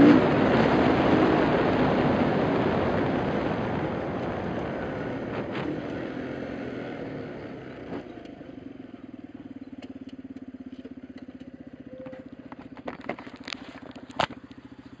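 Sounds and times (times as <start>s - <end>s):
small motorbike engine idling: 7.2s - 15.0s.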